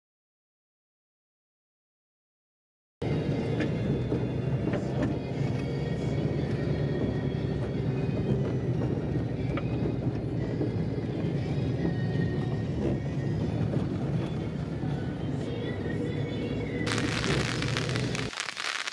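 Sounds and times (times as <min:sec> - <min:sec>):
car engine and tyres on road: 0:03.0 - 0:16.9.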